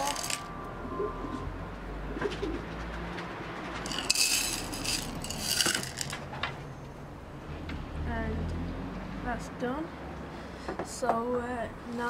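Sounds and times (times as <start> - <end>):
gravel stones rattling in metal pot: 0.0 - 0.5, 3.8 - 6.2.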